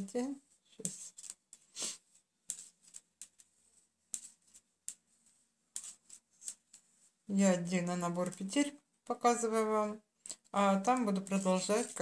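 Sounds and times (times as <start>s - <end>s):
yarn rubbing: 0.0s - 12.0s
knitting needles clicking: 0.8s - 3.5s, 4.1s - 5.1s, 5.7s - 6.9s, 7.6s - 12.0s.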